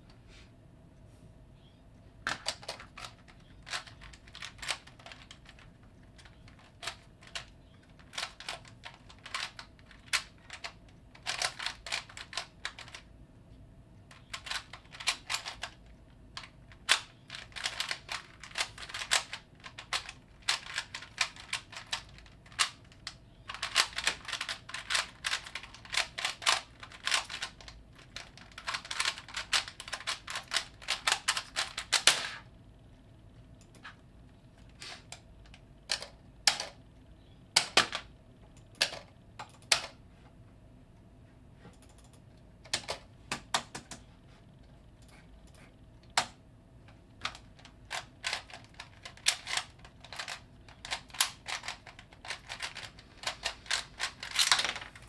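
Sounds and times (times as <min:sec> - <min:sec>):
puzzle cube plastic clicks: 0:02.2 - 0:13.1, 0:14.1 - 0:32.5, 0:37.5 - 0:40.0, 0:47.1 - 0:55.0.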